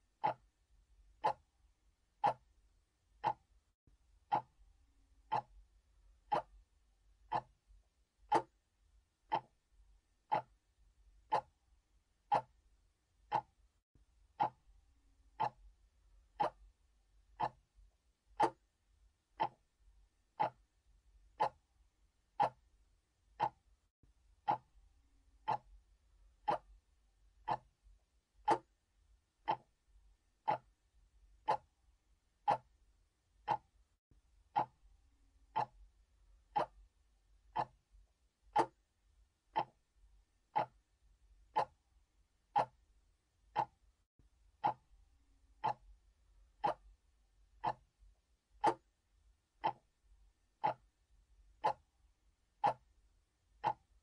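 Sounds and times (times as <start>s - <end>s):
mechanical clock ticking: 0.2s - 0.5s, 1.1s - 1.5s, 2.2s - 2.5s, 3.2s - 3.5s, 4.3s - 4.6s, 5.2s - 5.6s, 6.3s - 6.6s, 7.3s - 7.6s, 8.2s - 8.6s, 9.3s - 9.6s, 10.3s - 10.6s, 11.2s - 11.6s, 12.2s - 12.6s, 13.2s - 13.6s, 14.4s - 14.7s, 15.3s - 15.7s, 16.4s - 16.7s, 17.4s - 17.7s, 18.4s - 18.7s, 19.4s - 19.7s, 20.4s - 20.7s, 21.3s - 21.7s, 22.3s - 22.7s, 23.3s - 23.7s, 24.4s - 24.8s, 25.4s - 25.8s, 26.4s - 26.8s, 27.4s - 27.8s, 28.4s - 28.8s, 29.4s - 29.8s, 30.4s - 30.8s, 31.4s - 31.8s, 32.4s - 32.8s, 33.4s - 33.8s, 34.5s - 34.8s, 35.5s - 35.9s, 36.5s - 36.9s, 37.5s - 37.8s, 38.5s - 38.8s, 39.5s - 39.9s, 40.5s - 40.9s, 41.5s - 41.8s, 42.5s - 42.8s, 43.5s - 43.9s, 44.6s - 44.9s, 45.6s - 46.0s, 46.6s - 47.0s, 47.6s - 47.9s, 48.6s - 48.9s, 49.6s - 50.0s, 50.6s - 50.9s, 51.6s - 51.9s, 52.6s - 52.9s, 53.6s - 54.0s.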